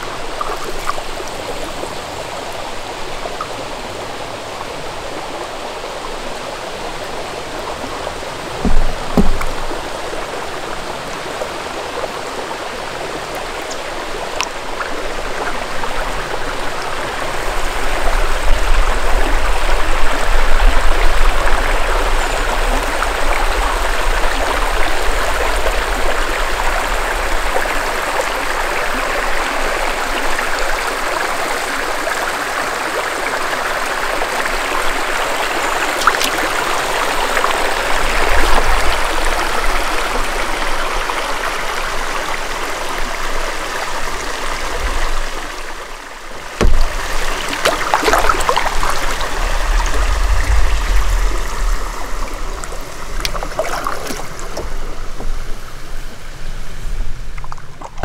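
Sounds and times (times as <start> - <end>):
water trickling and gurgling: 0.0 - 58.0
paddle splashes: 6.9 - 28.2, 35.5 - 58.0
sharp knock: 8.6 - 9.8, 46.6 - 47.0.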